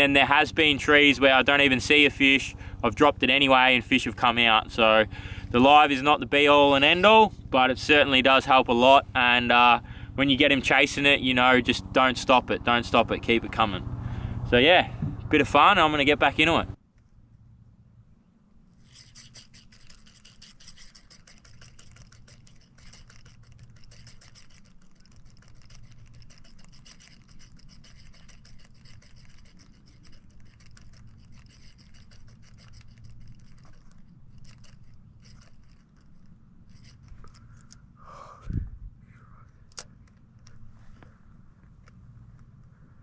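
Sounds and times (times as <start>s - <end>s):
steady low hum: 0.0s - 43.0s
fishing reel ticking and whirring: 18.8s - 37.9s.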